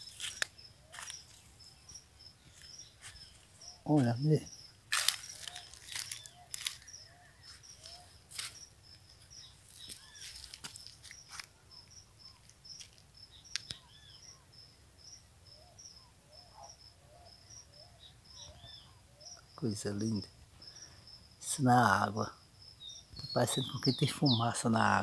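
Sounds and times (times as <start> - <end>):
repeated high bird chirp: 0.0 - 11.3, 22.8 - 24.5
birds chirping: 0.0 - 25.0.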